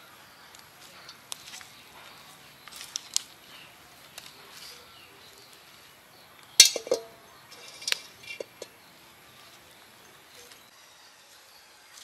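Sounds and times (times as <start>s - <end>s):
wok knocking as it settles: 6.6s - 7.2s
metal wok clanking on stones: 6.6s - 8.8s.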